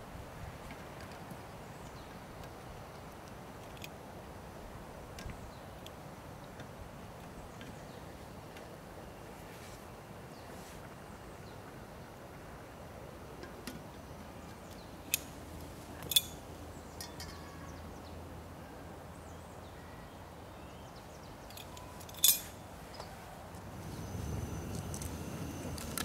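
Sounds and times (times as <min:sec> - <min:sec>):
steady low background noise: 0:00.0 - 0:26.0
sharp clinks: 0:16.0 - 0:16.4, 0:21.5 - 0:22.6.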